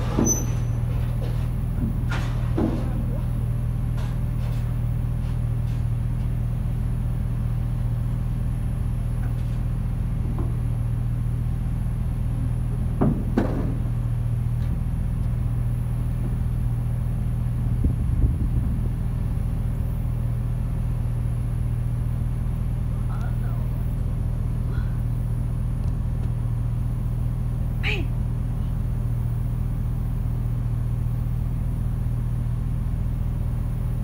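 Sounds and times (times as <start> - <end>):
freight train rumbling: 0.0 - 34.0
low knocks: 12.8 - 14.0.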